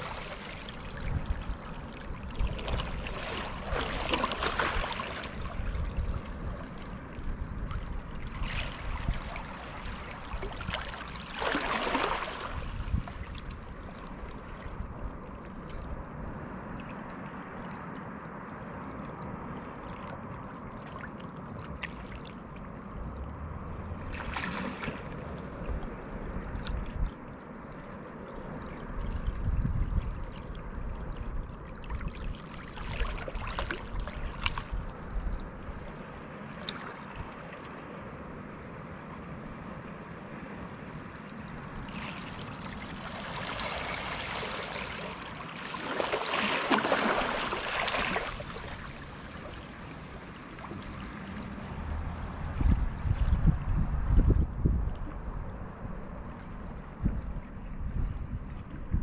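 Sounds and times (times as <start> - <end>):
waves lapping over rocks: 0.0 - 16.0, 23.9 - 27.8, 31.8 - 38.1, 41.4 - 53.5
water splashes: 0.0 - 38.5, 41.1 - 57.8.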